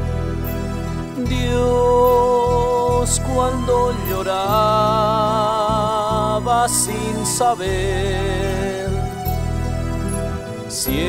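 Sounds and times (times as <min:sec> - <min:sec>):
held chords over steady bass: 0:00.0 - 0:11.0
person singing: 0:01.1 - 0:09.4, 0:10.6 - 0:11.0.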